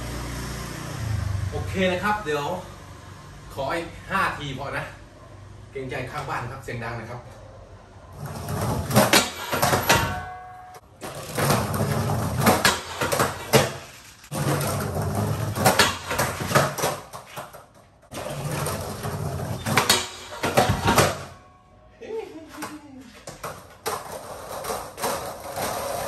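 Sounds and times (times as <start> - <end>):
skateboard wheels rolling on concrete: 8.0 - 21.4, 22.4 - 26.0
skateboard clacks on metal bar: 8.8 - 11.7, 12.4 - 13.8, 15.4 - 17.6, 19.6 - 21.3.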